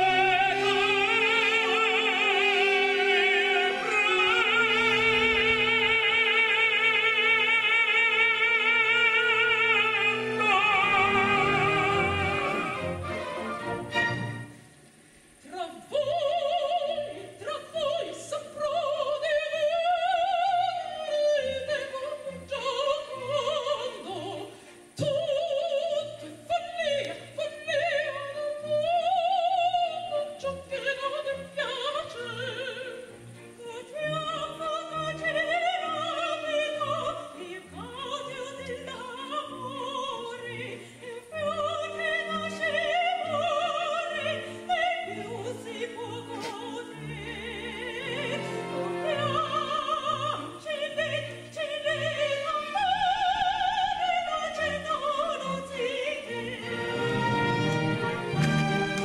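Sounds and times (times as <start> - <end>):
women singing operatic duet: 0.0 - 14.5, 15.4 - 59.0
orchestra of bowed strings: 0.0 - 15.0, 30.1 - 59.0.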